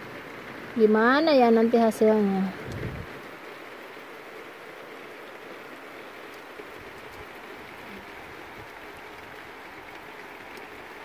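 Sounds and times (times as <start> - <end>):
steady rain falling: 0.0 - 11.0
faint drip ticks: 6.2 - 11.0.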